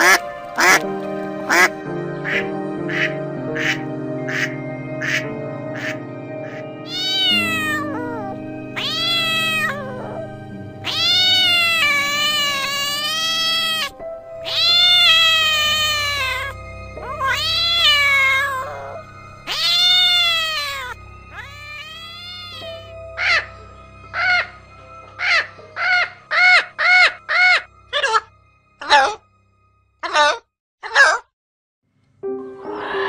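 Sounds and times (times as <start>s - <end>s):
background music: 0.0s - 30.0s, 32.1s - 33.0s
cat meowing: 6.5s - 22.9s.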